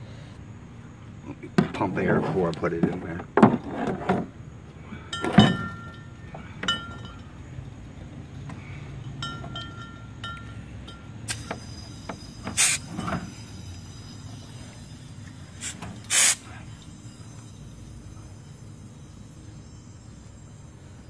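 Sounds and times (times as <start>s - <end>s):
metal clinks on steel tank: 5.1s - 7.4s, 9.0s - 13.6s
compressed air hissing: 11.3s - 21.0s.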